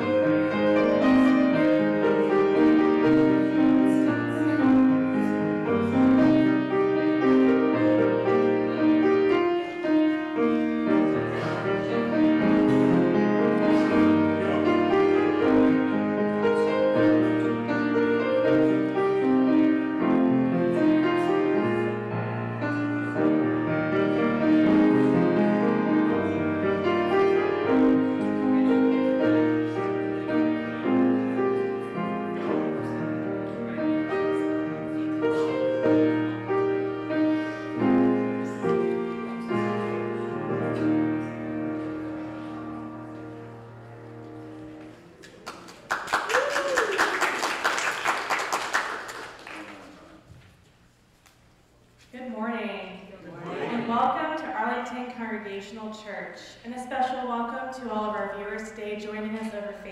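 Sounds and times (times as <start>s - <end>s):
grand piano playing: 0.0s - 45.5s.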